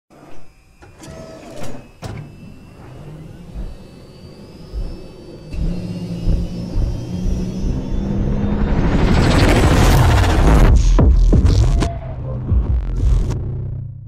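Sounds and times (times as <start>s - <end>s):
rising whine: 0.2s - 14.0s
deep drone: 1.9s - 14.0s
low thumps: 3.4s - 13.8s.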